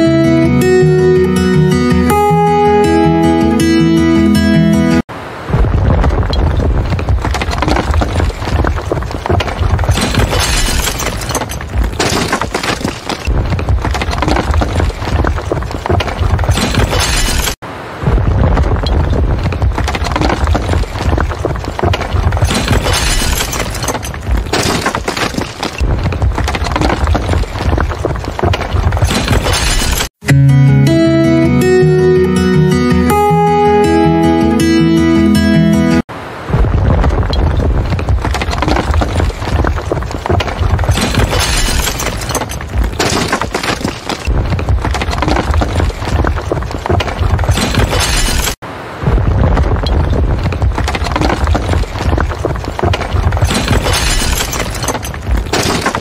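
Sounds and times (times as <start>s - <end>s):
building collapse rumbling crash: 5.4s - 30.1s, 36.4s - 56.0s
debris shattering and breaking: 5.6s - 30.2s, 36.6s - 56.0s.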